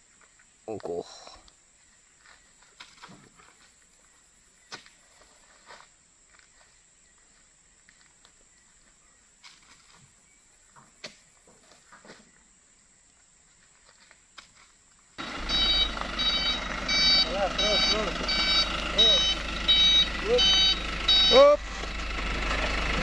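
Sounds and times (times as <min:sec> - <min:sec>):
reversing beeper: 0:15.2 - 0:23.0
truck engine: 0:15.2 - 0:23.0.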